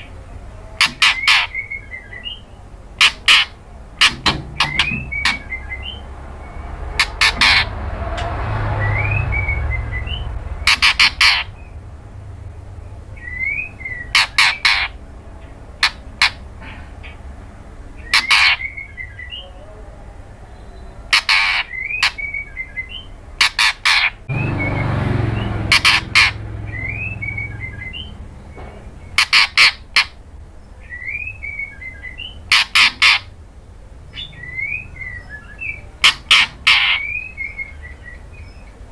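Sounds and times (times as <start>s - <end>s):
bird harsh calls: 0.0s - 12.1s, 12.8s - 19.8s, 20.4s - 38.9s
low rumbling noise: 1.6s - 14.2s, 24.2s - 29.2s
rising whistled bird notes: 4.6s - 6.6s, 8.7s - 10.3s, 13.2s - 14.1s, 26.6s - 28.2s.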